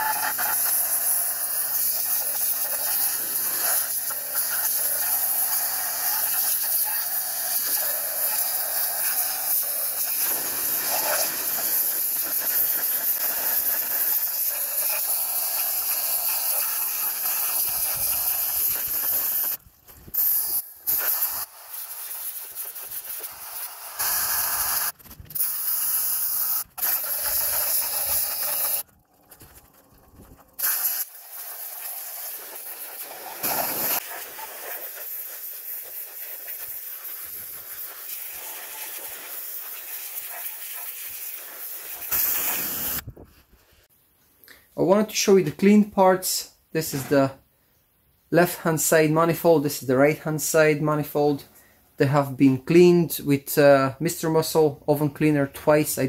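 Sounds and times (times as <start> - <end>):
pressure washer spraying: 0.0 - 43.0.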